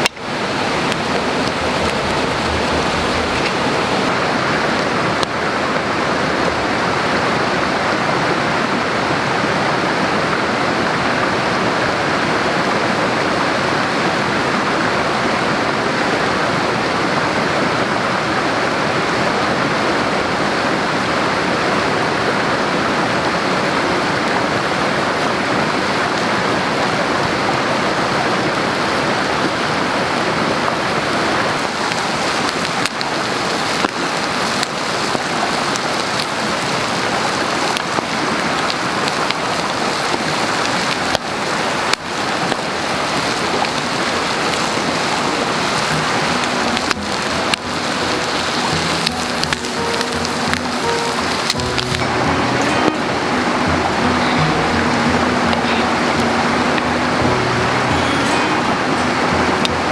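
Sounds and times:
water rushing: 0:00.0 - 0:59.9.

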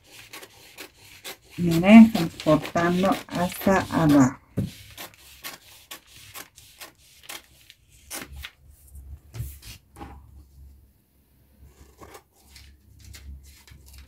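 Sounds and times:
scissors snipping paper: 0:00.0 - 0:08.4.

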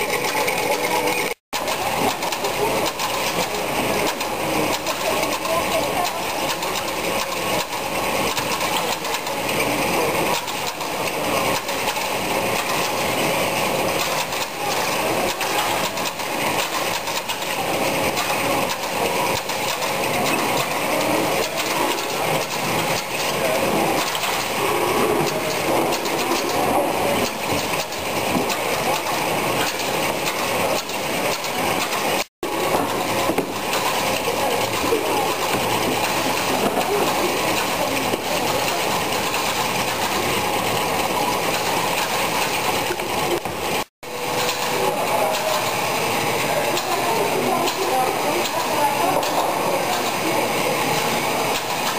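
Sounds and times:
conveyor machinery clatter: 0:00.0 - 0:51.9.

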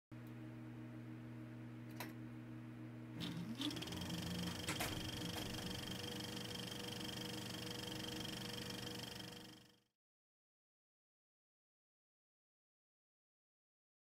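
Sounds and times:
low electronic drone: 0:03.2 - 0:09.9.

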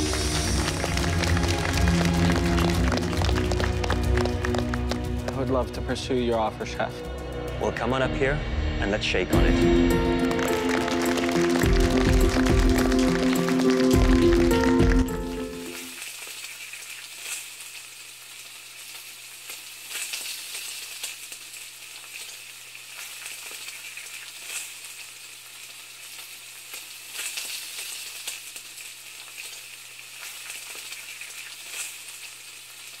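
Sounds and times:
crackling hiss with pops: 0:00.0 - 0:05.4, 0:15.3 - 0:33.0.

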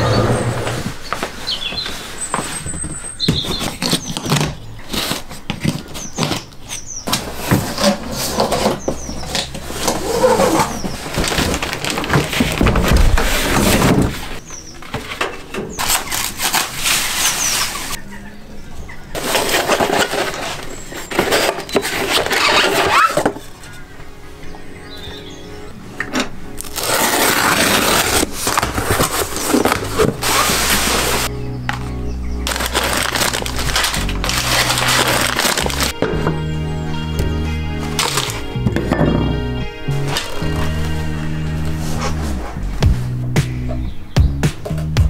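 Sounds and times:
high squeaks of rubbing material: 0:02.0 - 0:14.4, 0:15.7 - 0:18.0, 0:19.2 - 0:23.3, 0:26.6 - 0:31.3, 0:32.5 - 0:36.0
cardboard knocking and scraping: 0:02.4 - 0:06.5, 0:07.1 - 0:14.4, 0:26.8 - 0:31.3
packaging rustle: 0:03.2 - 0:14.4, 0:15.7 - 0:18.0, 0:19.2 - 0:23.8, 0:26.6 - 0:36.0, 0:37.9 - 0:38.4.

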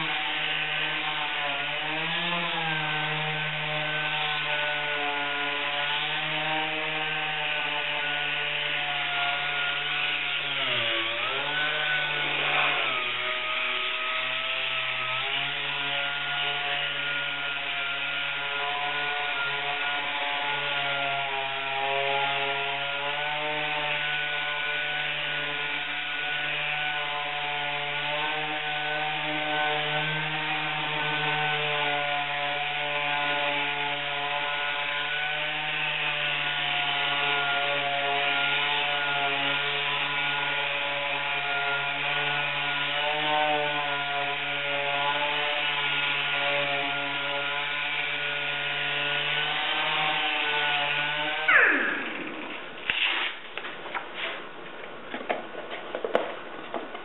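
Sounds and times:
sander whine: 0:00.0 - 0:55.3.

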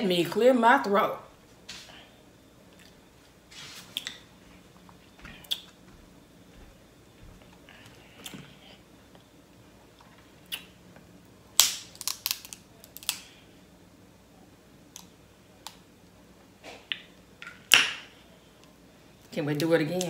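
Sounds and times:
crab shells cracking: 0:11.6 - 0:13.3.

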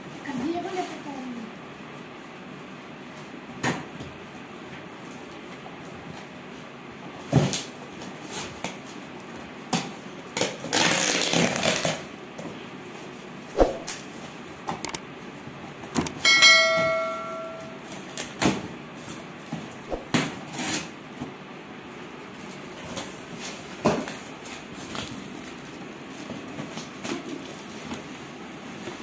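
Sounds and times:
bell-like chime: 0:16.2 - 0:17.8.

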